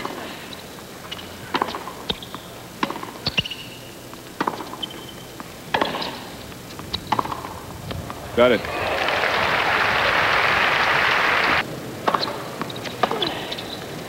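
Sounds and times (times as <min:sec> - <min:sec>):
shoe squeaks: 0:00.5 - 0:02.6, 0:03.2 - 0:07.3, 0:12.1 - 0:13.9
racquet hitting tennis ball: 0:01.1 - 0:08.8
ball bouncing on hard court: 0:01.5 - 0:08.5.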